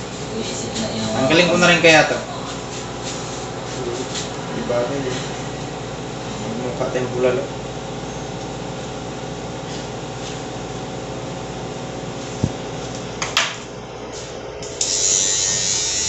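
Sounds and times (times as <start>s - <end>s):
electric hair trimmer buzzing: 14.6s - 16.0s.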